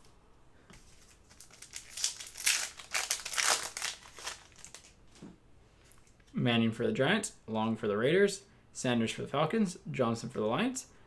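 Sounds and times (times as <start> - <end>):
plastic wrapper crinkling: 0.8 - 5.2.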